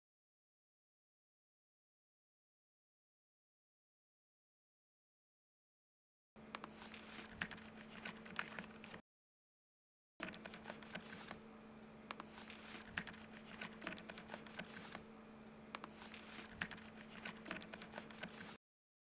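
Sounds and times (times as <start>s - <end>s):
keyboard typing: 6.5s - 9.0s, 10.2s - 11.4s, 12.1s - 15.0s, 15.7s - 18.6s
low steady hum: 10.2s - 18.6s.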